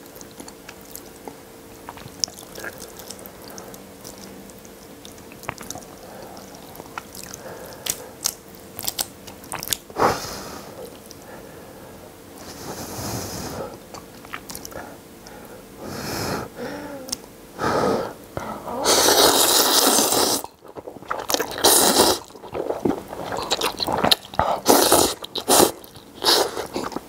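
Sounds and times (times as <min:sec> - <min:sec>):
wet chewing clicks and smacks: 0:00.0 - 0:10.0, 0:13.9 - 0:14.8, 0:19.8 - 0:27.0
man slurping noodles: 0:18.8 - 0:20.5, 0:21.4 - 0:27.0.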